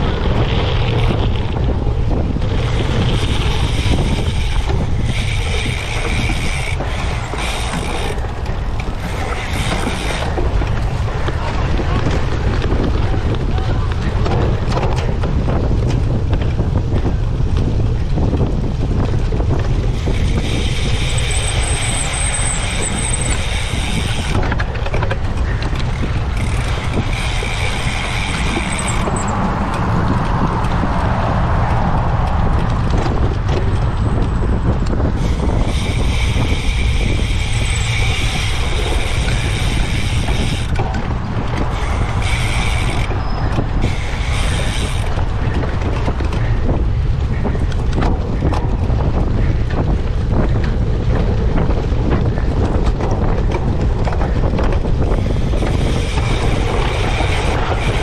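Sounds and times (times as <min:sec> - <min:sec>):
bike rumbling and rattling: 0:00.0 - 0:58.0
wind buffeting microphone: 0:00.0 - 0:58.0
high mechanical buzz: 0:35.2 - 0:40.8, 0:41.6 - 0:45.2.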